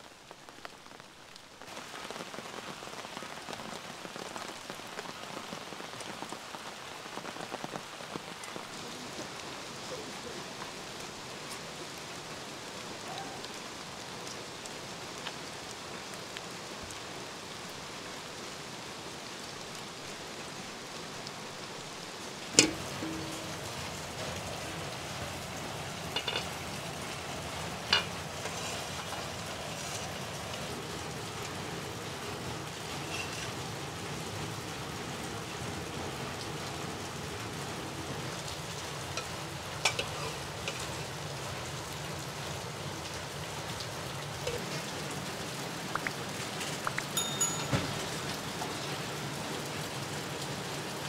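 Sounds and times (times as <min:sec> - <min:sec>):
steady rain falling: 0:00.0 - 0:51.0
metal pot lid clank: 0:22.6 - 0:23.8, 0:26.2 - 0:26.5.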